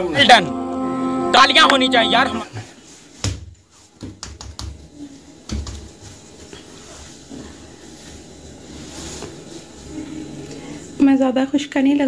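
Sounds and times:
hand slaps and taps: 4.0s - 4.8s.

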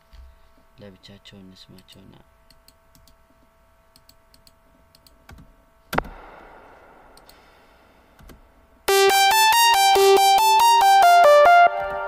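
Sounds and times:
sharp hit with hissing tail: 6.0s - 8.1s
bright synthesizer melody: 8.9s - 12.0s.

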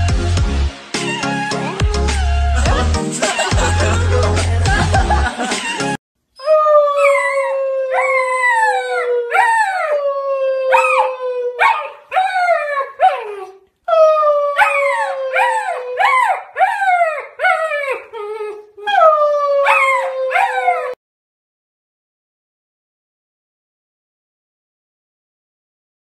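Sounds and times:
puppy howling: 1.0s - 4.1s, 5.5s - 21.0s.

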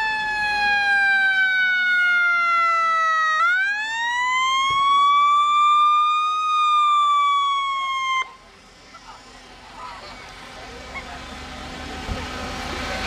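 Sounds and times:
emergency vehicle siren wailing: 0.0s - 8.5s.

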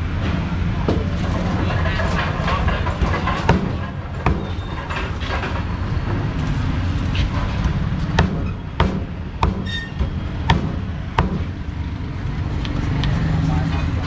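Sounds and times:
low traffic rumble: 0.0s - 14.0s
cleaver chopping on wooden block: 8.2s - 9.7s, 10.5s - 11.5s.

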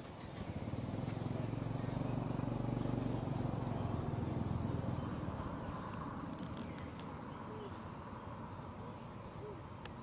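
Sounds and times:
passing vehicle engine hum: 0.0s - 10.0s.

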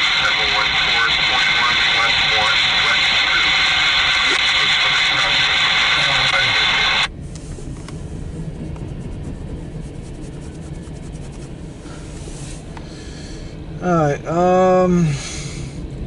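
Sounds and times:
loud steady hiss: 0.0s - 7.1s.

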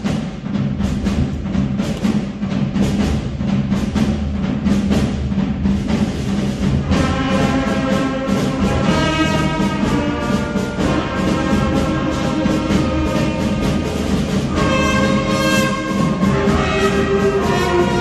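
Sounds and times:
drum and timpani strokes: 0.0s - 18.0s
school wind band playing: 5.8s - 18.0s
wind instruments holding notes: 6.6s - 18.0s.

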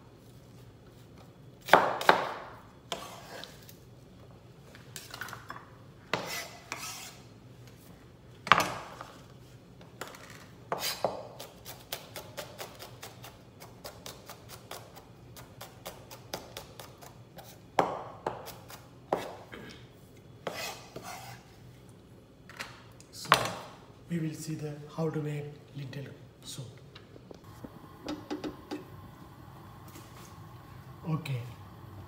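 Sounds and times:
knife chopping on cutting board: 1.6s - 3.4s.

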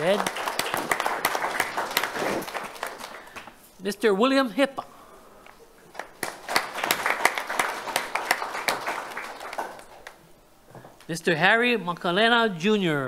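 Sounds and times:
audience applauding: 0.0s - 3.6s, 5.9s - 10.2s.

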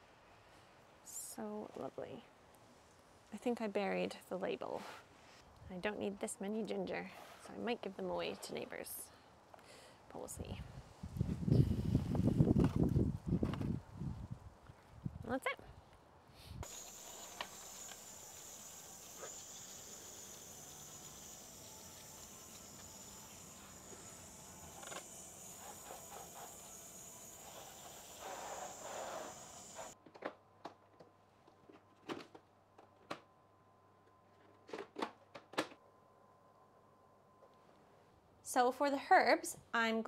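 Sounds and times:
garden hose spraying water: 16.6s - 30.0s.

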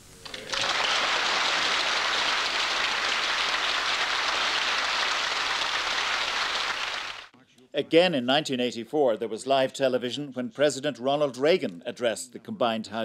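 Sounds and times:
large crowd applauding: 0.0s - 7.3s.

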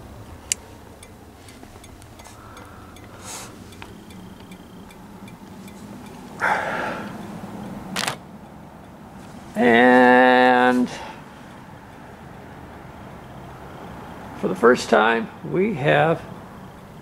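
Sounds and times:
faint ticks and rustles: 0.2s - 7.8s, 8.4s - 12.8s.

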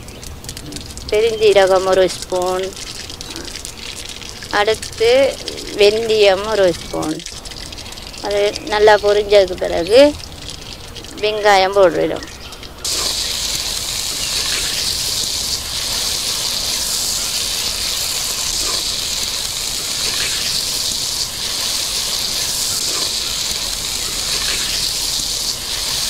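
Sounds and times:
onions sizzling in oil: 0.0s - 26.0s
onions being stirred: 12.2s - 26.0s.

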